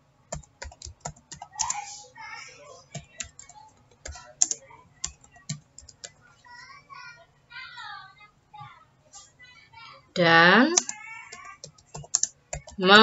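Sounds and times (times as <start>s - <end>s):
keyboard typing clicks: 0.3s - 1.8s, 2.9s - 6.2s, 10.7s - 13.0s.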